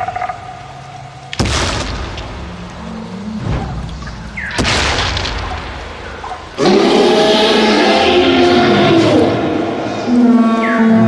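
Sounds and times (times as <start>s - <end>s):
low rumble: 0.0s - 11.0s
booming hits: 1.3s - 7.0s.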